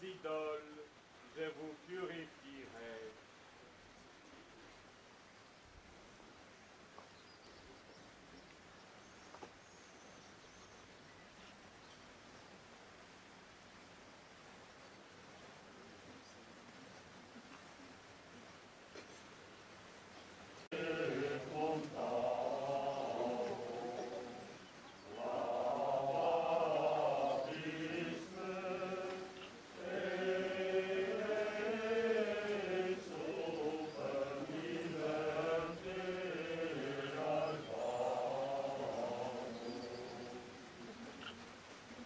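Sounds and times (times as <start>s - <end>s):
voices singing a slow chant: 0.0s - 3.2s, 20.6s - 41.8s.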